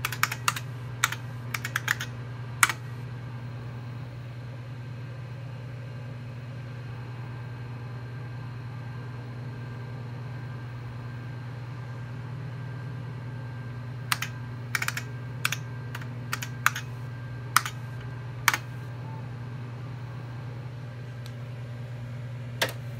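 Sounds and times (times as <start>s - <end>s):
keyboard key clicks: 0.0s - 2.8s, 14.1s - 16.9s, 17.6s - 17.8s
computer humming: 0.0s - 4.3s, 13.7s - 22.9s.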